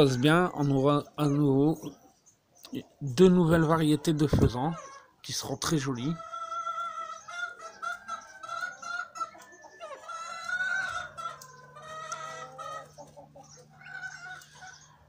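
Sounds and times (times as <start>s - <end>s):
young pheasant calling: 4.3s - 5.3s, 6.0s - 15.0s.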